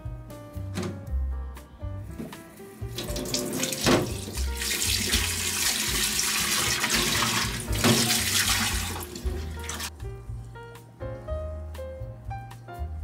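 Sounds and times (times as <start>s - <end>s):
tap water splashing into bowl: 3.0s - 9.9s.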